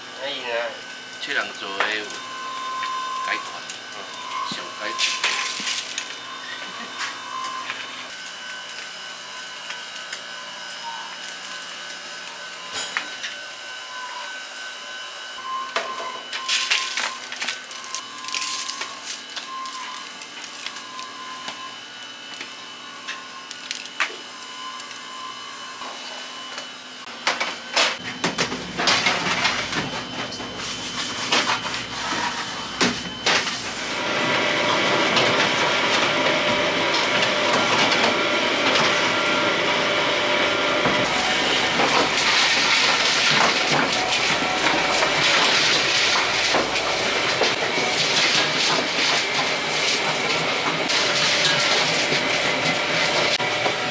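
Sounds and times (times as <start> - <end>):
machine whine: 0.0 - 53.9.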